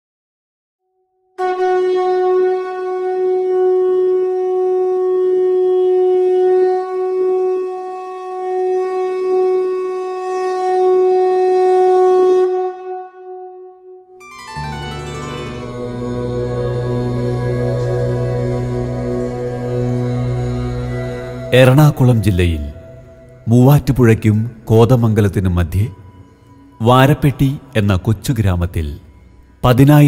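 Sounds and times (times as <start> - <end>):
music: 0.8 - 30.0
conch shell blown: 1.4 - 23.5.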